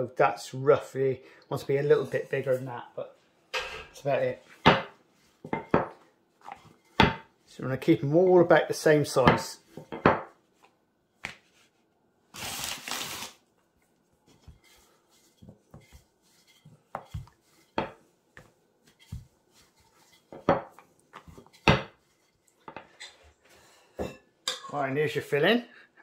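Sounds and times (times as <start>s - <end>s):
rolling pin rolling dough: 14.2s - 23.0s.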